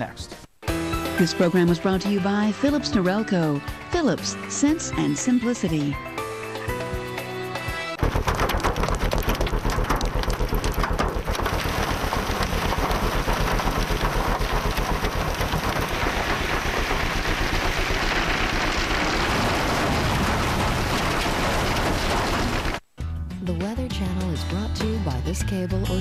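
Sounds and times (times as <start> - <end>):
hail and heavy rain pelting: 8.0 - 22.8.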